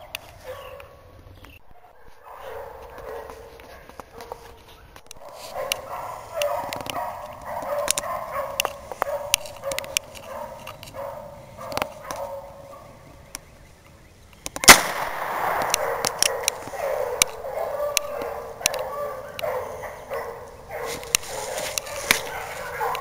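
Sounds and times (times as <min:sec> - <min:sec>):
hounds baying: 0:00.0 - 0:13.8, 0:14.6 - 0:23.0
revolver shot: 0:14.6 - 0:15.9.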